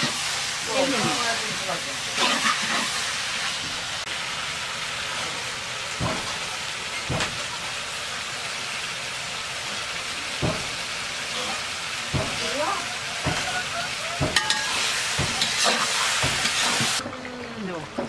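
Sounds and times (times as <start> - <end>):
metal spatula knocking pan: 13.2 - 13.5, 14.2 - 16.6.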